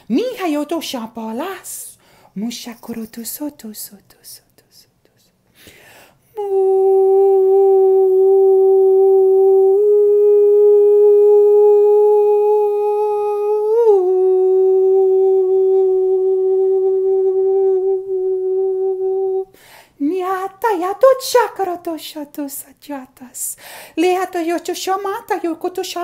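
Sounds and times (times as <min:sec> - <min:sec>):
man humming a held note: 0:06.4 - 0:19.5.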